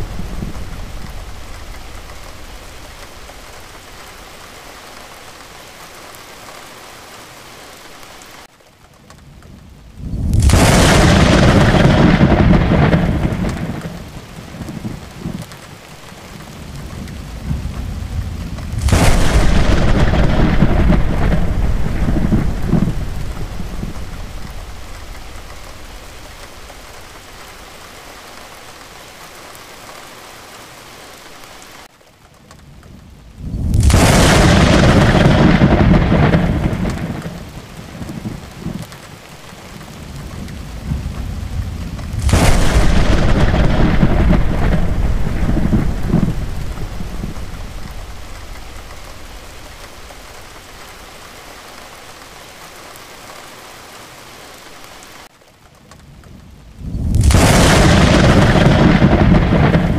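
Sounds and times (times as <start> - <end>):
thunder cracking and rumbling: 0.0 - 5.3, 9.3 - 28.0, 32.7 - 51.2, 56.0 - 59.9
steady rain: 0.0 - 59.9.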